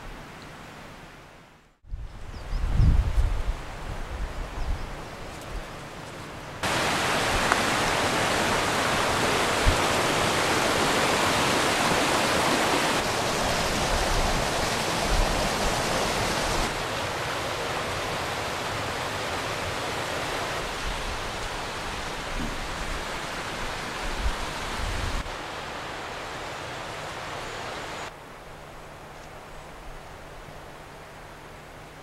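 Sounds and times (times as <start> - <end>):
river rushing: 6.6 - 32.0.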